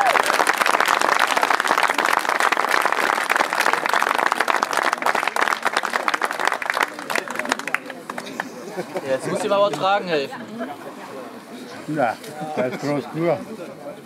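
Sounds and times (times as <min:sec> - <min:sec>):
crowd applauding: 0:00.0 - 0:08.6.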